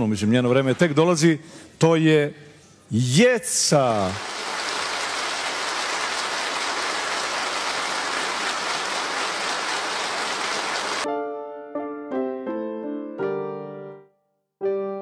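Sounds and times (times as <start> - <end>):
studio audience applauding: 3.8 - 11.1
keyboard notes: 11.0 - 15.0.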